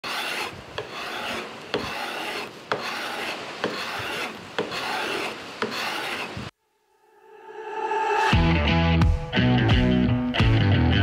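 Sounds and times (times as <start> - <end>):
card scraper rasping on wood: 0.0 - 6.5.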